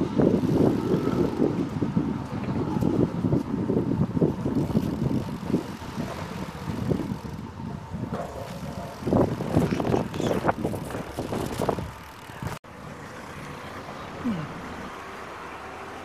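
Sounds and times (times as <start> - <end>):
bike rattling and knocking: 0.0 - 12.6
bicycle rolling on pavement: 0.0 - 16.0.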